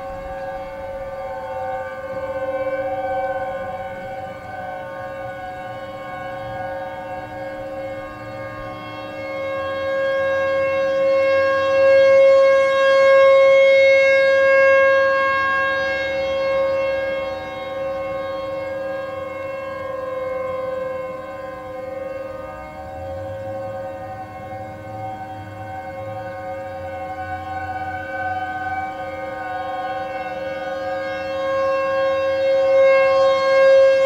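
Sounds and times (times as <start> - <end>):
warning sirens steady tone: 0.0 - 34.0.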